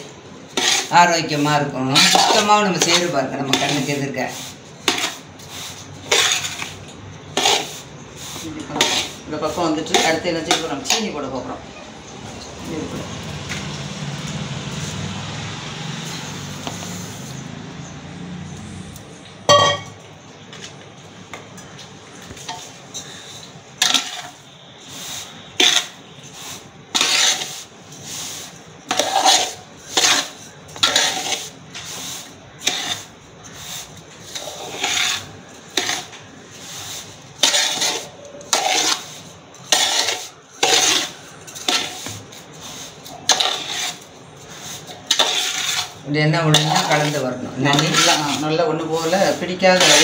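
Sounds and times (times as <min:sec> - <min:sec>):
spoon scraping metal pot: 0:00.0 - 0:12.7, 0:16.0 - 0:17.6, 0:18.9 - 0:20.1, 0:22.3 - 0:50.0
sharp spoon clink: 0:19.5 - 0:20.0.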